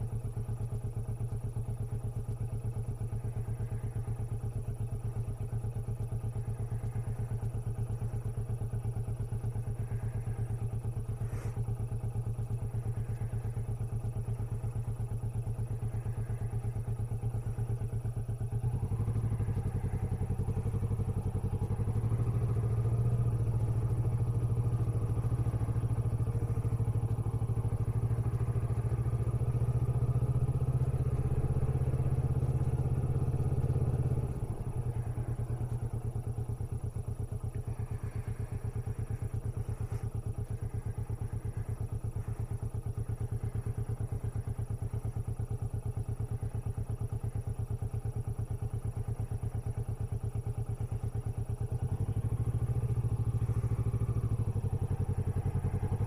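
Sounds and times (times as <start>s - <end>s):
motorcycle engine at low revs: 0.0s - 56.0s.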